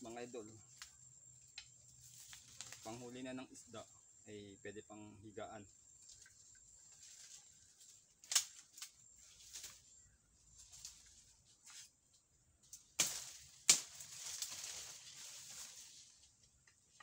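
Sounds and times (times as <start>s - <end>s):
fronds and branches rustling: 0.0s - 4.2s, 5.6s - 17.0s
crackles and clicks: 0.7s - 3.0s.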